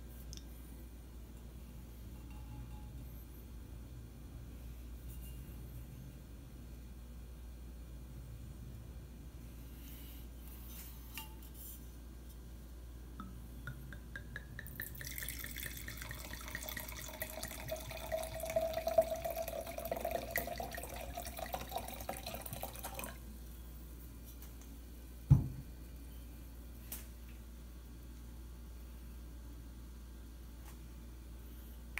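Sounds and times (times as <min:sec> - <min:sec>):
wine pouring into a glass: 0:14.0 - 0:23.2
bottle thumping on table: 0:25.3 - 0:25.6.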